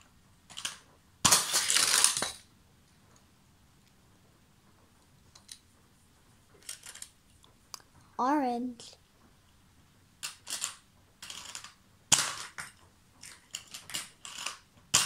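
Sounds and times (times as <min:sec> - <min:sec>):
toy cars clicking and clattering: 0:00.5 - 0:02.5, 0:06.6 - 0:07.2, 0:10.2 - 0:15.0.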